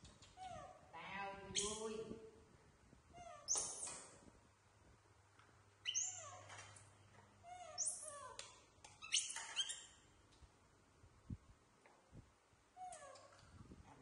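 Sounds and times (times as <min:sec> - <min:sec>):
baby monkeys calling: 0:05.9 - 0:06.4, 0:07.5 - 0:08.4.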